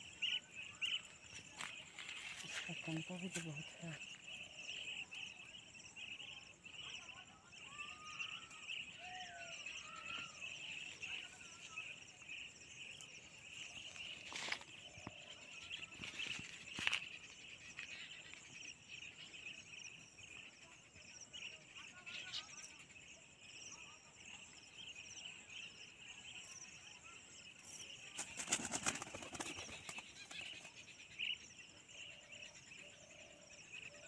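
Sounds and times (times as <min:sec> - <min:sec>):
faint bird calls: 0:00.0 - 0:19.7
insects buzzing and ticking: 0:00.0 - 0:34.0.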